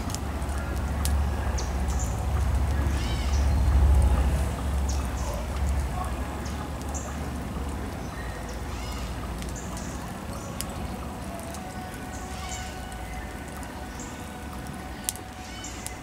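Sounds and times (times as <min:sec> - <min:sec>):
birds calling: 0:00.0 - 0:16.0
charcoal fire burning: 0:00.0 - 0:16.0
fire crackles: 0:00.0 - 0:16.0.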